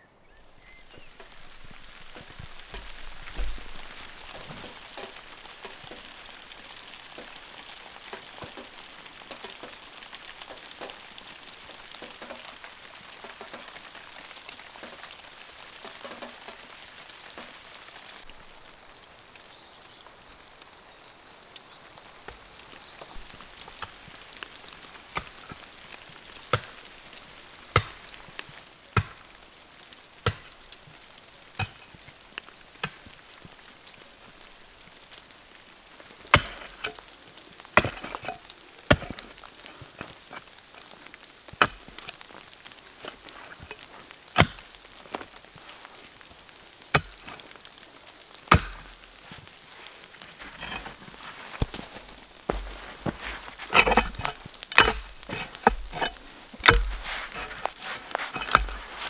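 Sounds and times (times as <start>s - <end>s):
steady rain falling: 0.0s - 59.0s
pick digging into stony soil: 50.3s - 59.0s.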